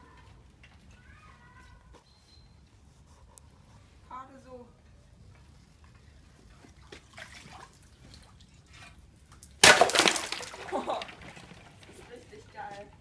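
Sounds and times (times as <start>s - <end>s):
ice shattering into water: 9.4s - 11.7s.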